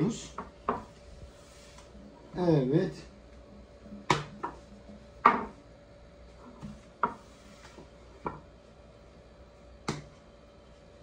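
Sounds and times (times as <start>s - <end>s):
dough thrown onto marble slab: 4.1s - 4.6s.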